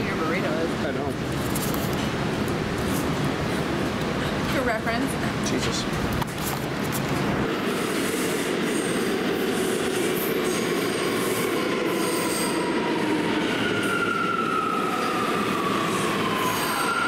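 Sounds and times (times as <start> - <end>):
subway train rumbling: 0.0 - 17.0
high wheel squeal: 10.2 - 13.0, 15.9 - 17.0.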